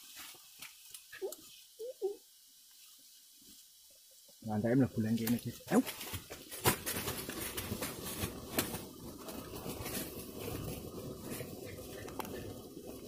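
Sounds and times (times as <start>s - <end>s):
rustling in dry leaves: 0.0s - 4.1s, 5.4s - 11.8s.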